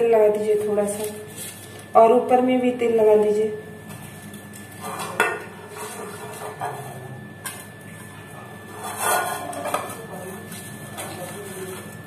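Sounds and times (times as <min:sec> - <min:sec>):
pastry brush scraping metal tin: 0:08.7 - 0:09.9.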